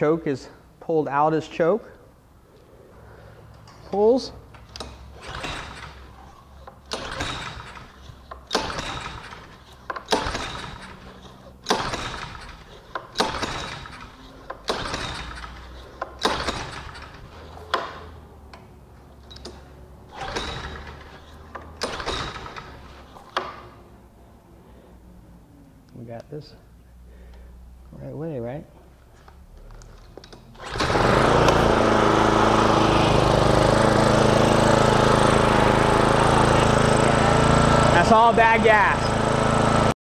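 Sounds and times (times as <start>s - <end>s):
small engine cranking by pull rope: 4.7s - 18.2s, 19.3s - 23.6s, 30.6s - 39.9s.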